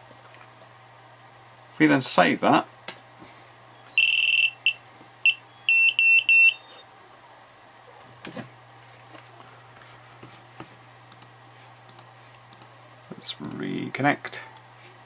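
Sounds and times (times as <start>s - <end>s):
high-pitched electronic beeps: 3.8s - 6.9s.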